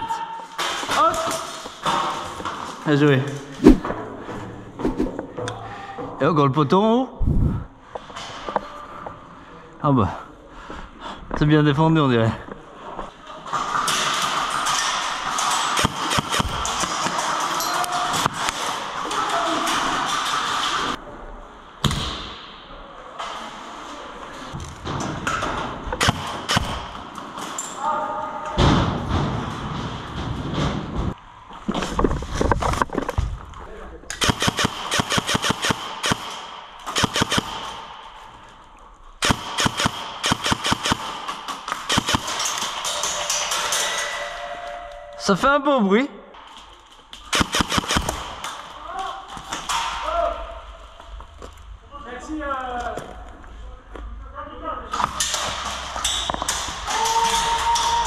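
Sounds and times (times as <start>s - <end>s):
airsoft gun shots: 15.8s - 16.9s, 26.0s - 26.9s, 34.2s - 38.0s, 39.2s - 42.6s, 47.3s - 48.4s.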